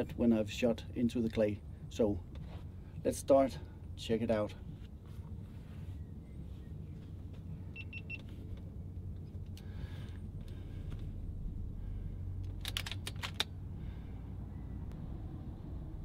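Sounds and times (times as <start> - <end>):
low steady rumble: 0.0 - 16.0
air rifle mechanical clicks: 12.4 - 13.6.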